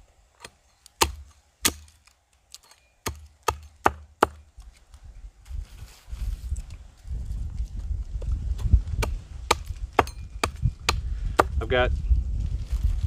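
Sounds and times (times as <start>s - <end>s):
hatchet chopping wood: 0.4s - 4.7s, 8.5s - 11.7s.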